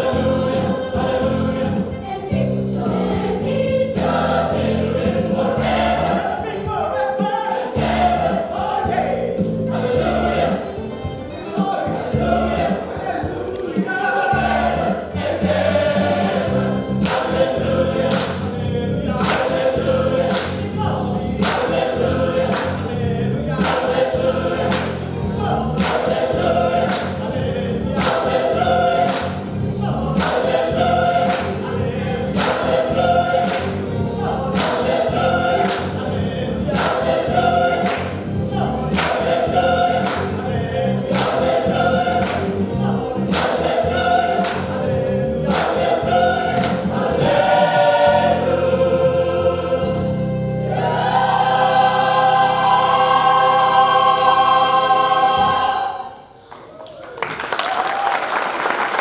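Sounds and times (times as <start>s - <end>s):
choir singing gospel song: 0.0s - 56.4s
hands clapping on a beat: 4.0s - 4.3s, 13.4s - 13.9s, 17.0s - 17.5s, 18.1s - 18.6s, 19.2s - 20.8s, 21.4s - 23.0s, 23.6s - 27.3s, 27.9s - 33.9s, 34.5s - 40.5s, 41.1s - 47.0s, 56.5s - 59.0s.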